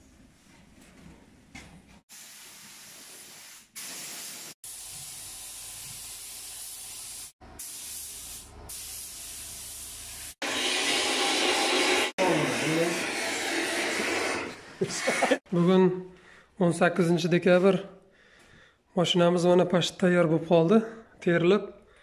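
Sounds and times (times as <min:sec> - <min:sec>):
paint spray gun hissing: 0:02.1 - 0:10.4.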